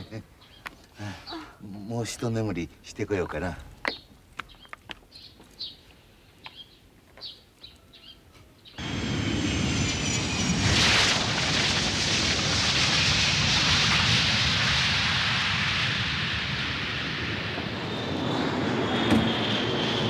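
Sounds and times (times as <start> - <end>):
birds chirping: 0.0 - 8.9
jet airliner landing: 8.8 - 20.0.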